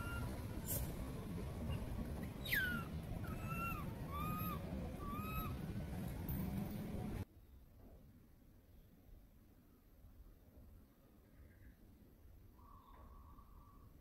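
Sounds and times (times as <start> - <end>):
monkey calling: 0.0 - 0.9, 1.6 - 5.7
steady low rumble: 0.0 - 7.3.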